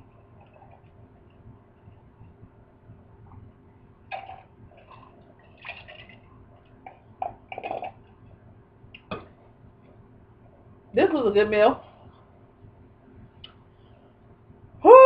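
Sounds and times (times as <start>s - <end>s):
person sipping and gulping: 7.2s - 8.0s.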